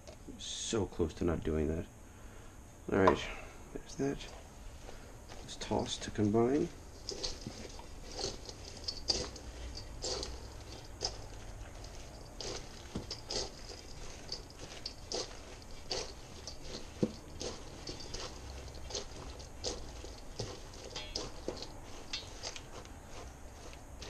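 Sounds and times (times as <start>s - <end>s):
salad tossed in a bowl: 6.7s - 24.0s.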